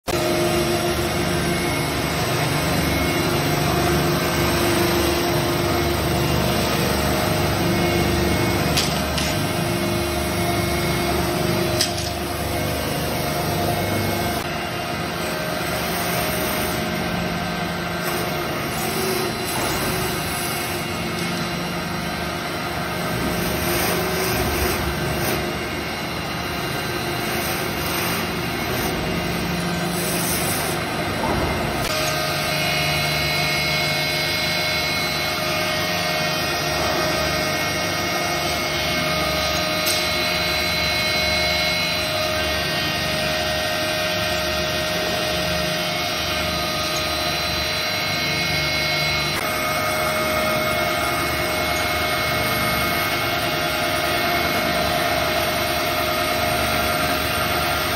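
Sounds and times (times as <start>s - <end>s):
workshop machine running: 0.0s - 57.9s
sanding machine running: 0.1s - 57.9s.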